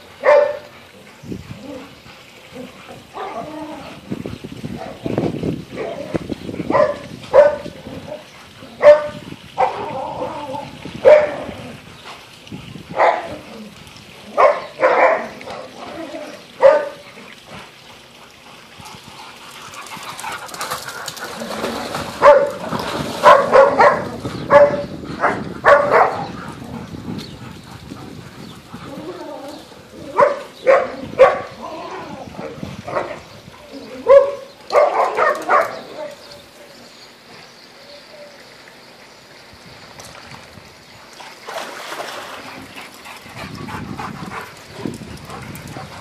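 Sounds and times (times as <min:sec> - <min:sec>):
dogs barking: 0:00.2 - 0:00.8, 0:06.7 - 0:09.9, 0:11.0 - 0:11.5, 0:12.9 - 0:13.4, 0:14.3 - 0:15.9, 0:16.5 - 0:17.0, 0:22.2 - 0:26.8, 0:30.1 - 0:31.7, 0:32.9 - 0:33.3, 0:34.0 - 0:36.2.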